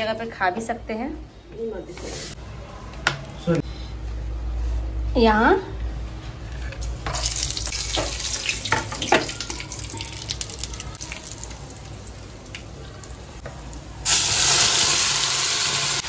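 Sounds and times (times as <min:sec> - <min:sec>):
hot oil sizzling: 0:07.0 - 0:16.0.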